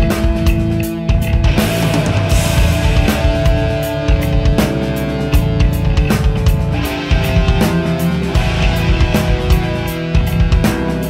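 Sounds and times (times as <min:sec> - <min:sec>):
guitars holding chords: 0:00.0 - 0:11.0
heavy drum and cymbal hits: 0:00.0 - 0:11.0.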